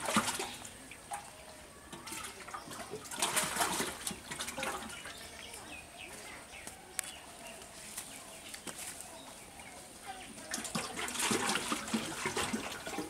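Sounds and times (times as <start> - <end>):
water sloshing in a metal pot: 0.0 - 5.7, 10.3 - 13.0.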